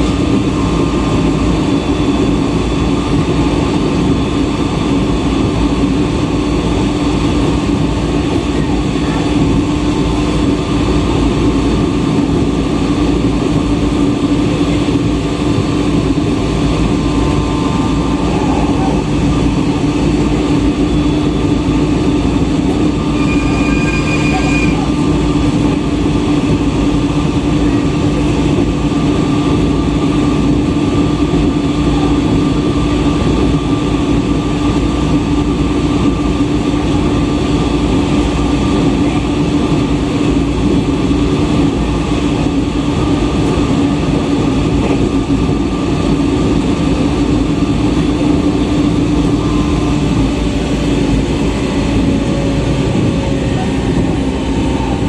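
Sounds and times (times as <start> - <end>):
wheel-on-rail rumble: 0.0 - 55.0.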